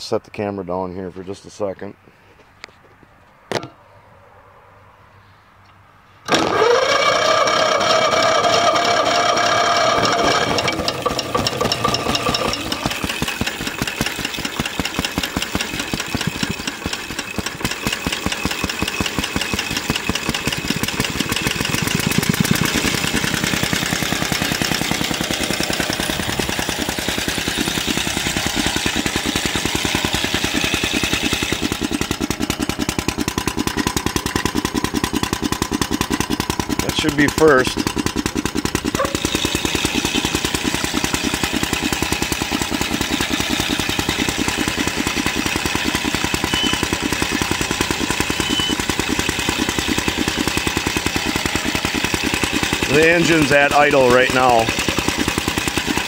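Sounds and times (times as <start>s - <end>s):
steady engine whine: 5.7s - 56.0s
small engine running: 6.3s - 56.0s.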